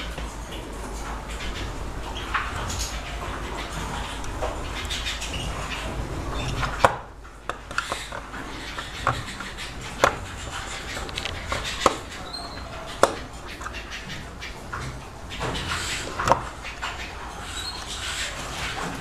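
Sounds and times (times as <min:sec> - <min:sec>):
sharp clicks and knocks: 0:06.5 - 0:18.0.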